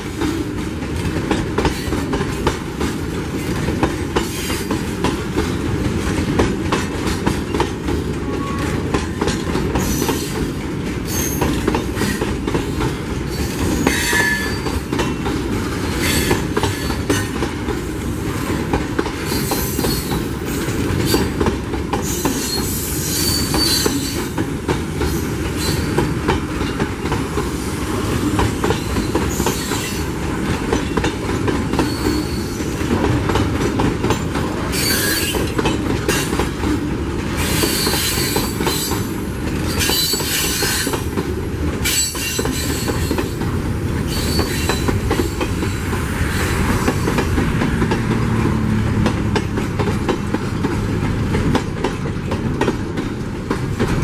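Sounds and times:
wheels clicking over rail joints: 0.0s - 46.1s, 46.7s - 54.0s
steel wheels rumbling on rail: 0.0s - 54.0s
high wheel squeal: 13.4s - 14.8s, 22.0s - 24.2s, 31.8s - 32.6s, 34.7s - 35.5s, 44.1s - 47.1s.

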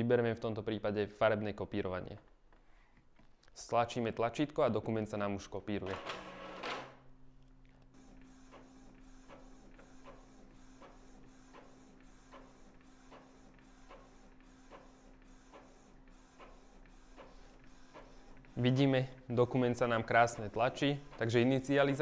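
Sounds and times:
printer humming: 5.8s - 7.0s, 8.0s - 22.0s
print head carriage ticking: 16.4s - 22.0s.

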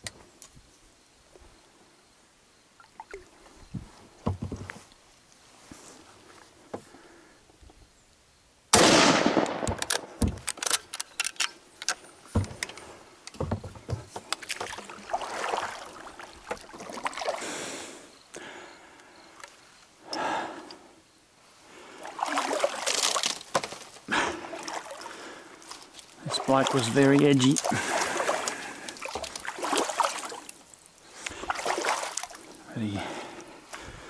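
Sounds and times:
knocks against kayak hull: 4.2s - 4.8s, 13.4s - 14.2s
rifle shot echoing: 8.7s - 10.2s
paddle strokes splashing: 14.0s - 17.6s, 21.8s - 32.6s.

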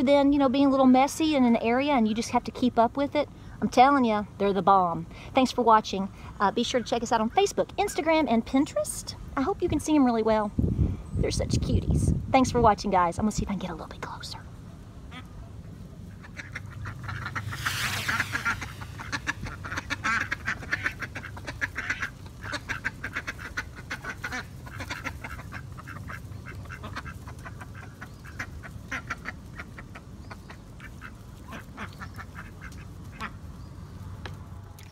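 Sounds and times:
ducks quacking: 16.1s - 33.4s
brief rush of noise: 17.1s - 20.4s.

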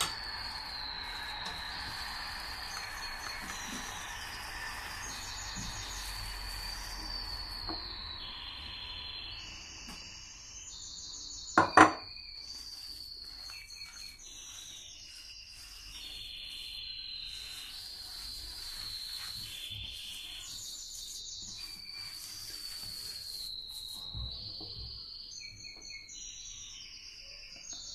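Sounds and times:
hand squeezing dough in bowl: 0.0s - 8.2s, 12.2s - 24.4s
high-pitched chirring: 0.0s - 24.5s.

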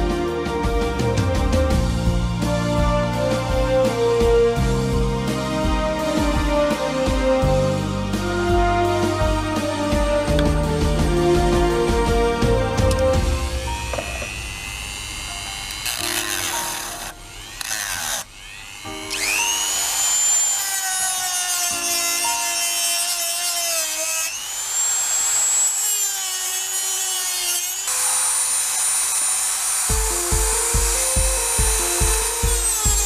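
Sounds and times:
music with steady beat: 0.0s - 14.7s, 29.9s - 33.0s
rotary tool cutting plastic pipe: 13.8s - 33.0s.

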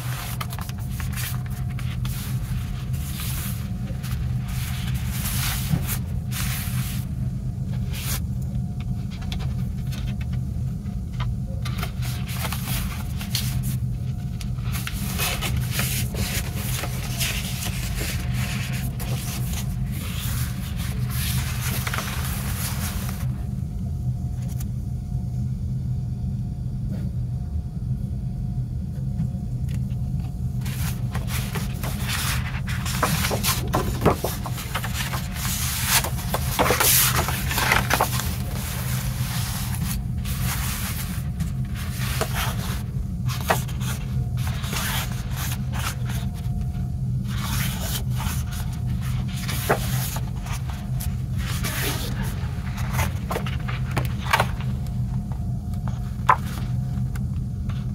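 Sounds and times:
paper rustling and sliding: 0.0s - 7.1s, 7.7s - 8.3s, 11.6s - 23.4s, 30.6s - 46.6s, 47.3s - 57.9s
steady low hum: 0.0s - 57.9s.

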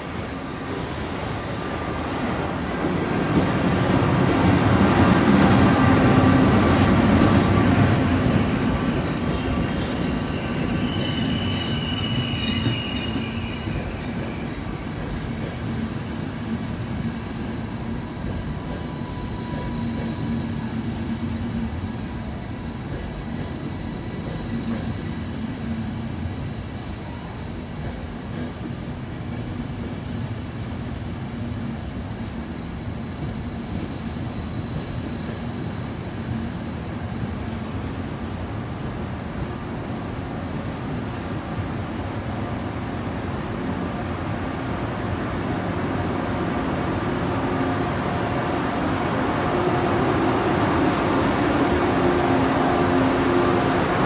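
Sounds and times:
train coaches rolling: 0.0s - 29.9s
wheel brake squeal: 8.9s - 15.6s, 37.5s - 38.0s.

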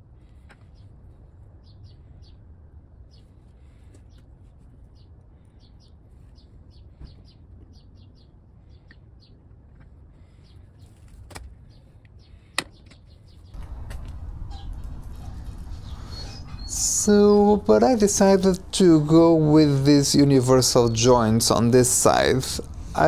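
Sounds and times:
low steady background rumble: 0.0s - 23.0s
small bird chirping: 11.6s - 23.0s.

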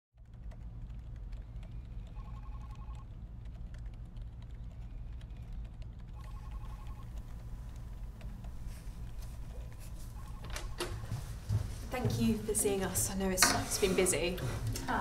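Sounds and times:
low room hum: 0.2s - 15.0s
telephone ringing trill: 2.1s - 3.1s, 6.2s - 7.3s, 10.1s - 11.3s.

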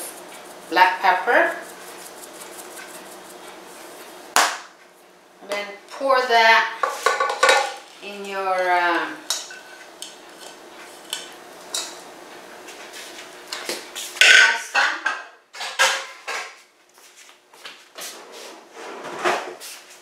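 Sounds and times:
dishes and utensils clattering: 6.8s - 7.8s, 14.2s - 16.5s.

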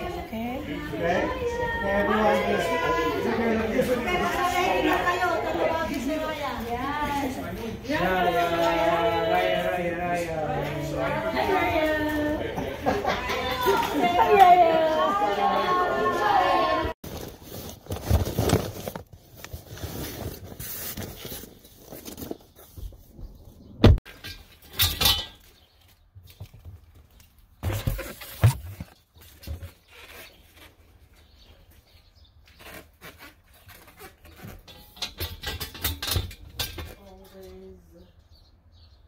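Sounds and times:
rustling: 17.0s - 23.2s.

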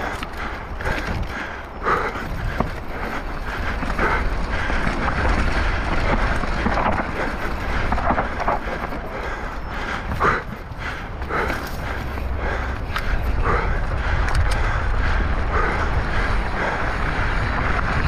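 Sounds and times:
wind buffeting microphone: 0.0s - 18.0s.

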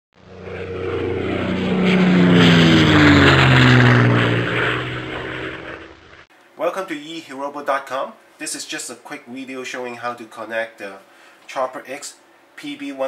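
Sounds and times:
propeller airplane flying past: 0.2s - 6.3s.

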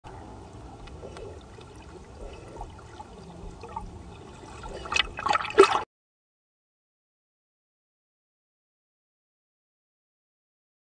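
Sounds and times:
water sloshing underwater: 0.1s - 5.9s.

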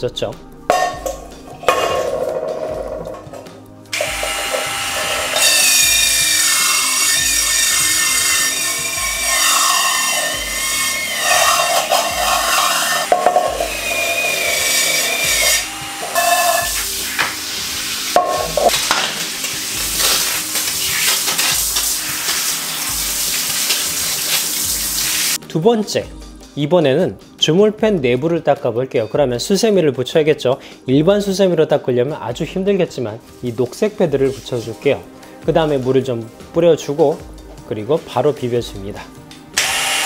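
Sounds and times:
pad scrubbing frying pan: 0.7s - 3.3s, 6.3s - 25.4s
shower head spraying water: 3.9s - 25.4s, 39.6s - 40.0s
power scrubber motor whine: 4.0s - 16.7s, 39.6s - 40.0s.

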